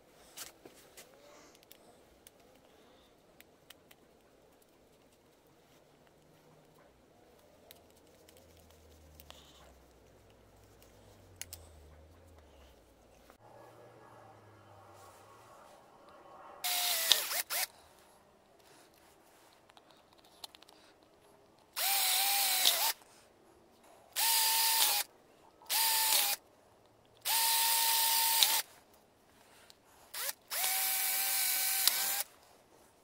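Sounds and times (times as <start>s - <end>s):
electric drill whining: 16.6s - 17.7s, 21.8s - 23.0s, 24.2s - 25.0s, 25.7s - 26.4s, 27.2s - 28.6s, 30.1s - 32.3s.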